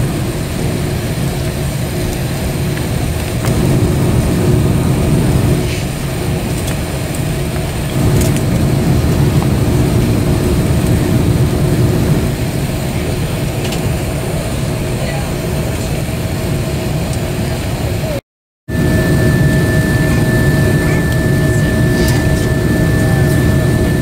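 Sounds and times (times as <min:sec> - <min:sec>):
cabin ventilation hum: 0:03.4 - 0:14.5, 0:18.7 - 0:24.0
faint steady tones: 0:18.7 - 0:24.0.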